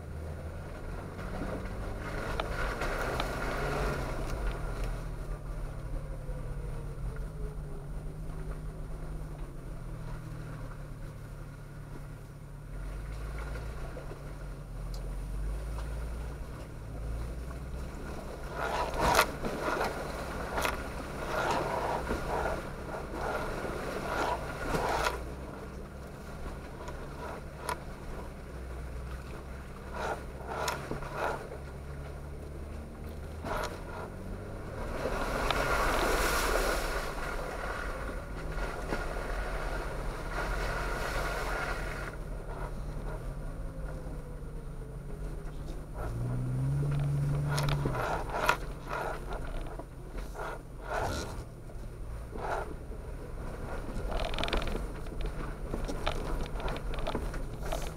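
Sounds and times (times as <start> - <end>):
engine running at low speed: 0.0 - 57.9
tyres splashing through water: 0.0 - 57.9
tyres scraping over rocks: 17.3 - 44.0, 45.2 - 57.9.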